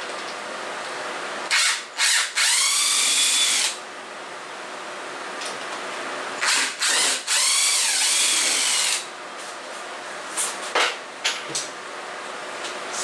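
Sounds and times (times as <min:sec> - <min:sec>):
cordless drill whining: 0:01.6 - 0:03.8, 0:06.4 - 0:09.0.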